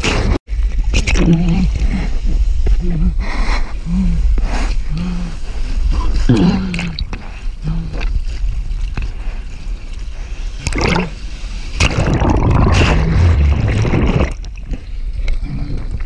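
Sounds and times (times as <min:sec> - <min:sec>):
churning water underwater: 0:05.2 - 0:16.0
paddling splashes: 0:10.6 - 0:14.8.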